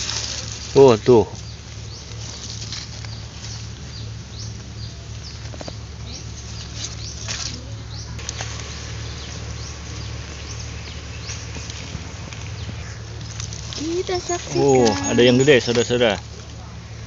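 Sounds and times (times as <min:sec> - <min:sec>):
vines and soil rustled by hand: 0:00.0 - 0:16.7
small birds chirping: 0:00.0 - 0:17.0
steady low hum: 0:00.0 - 0:17.0.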